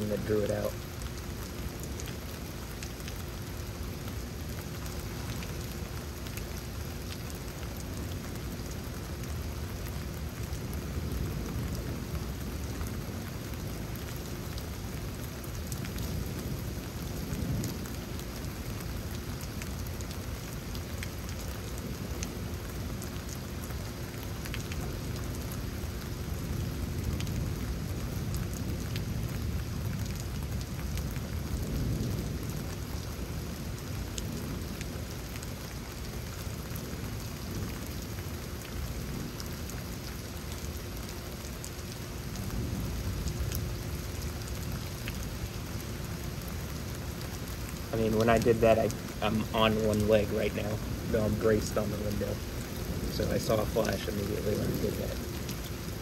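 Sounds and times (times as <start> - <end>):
rain drop ticks: 0.0 - 56.0
steady rain: 0.0 - 56.0
thunder rumbles: 26.3 - 35.1, 47.6 - 56.0.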